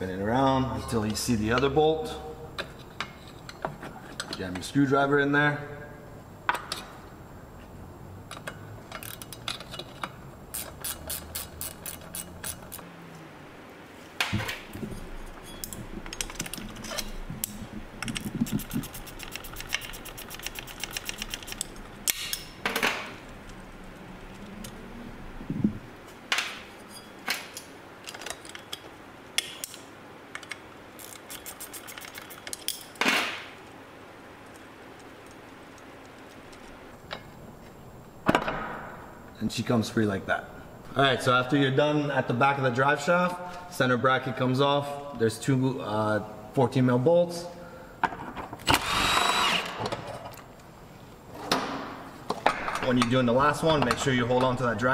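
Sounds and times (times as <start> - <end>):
wrench ratcheting clicks: 10.5 - 12.8.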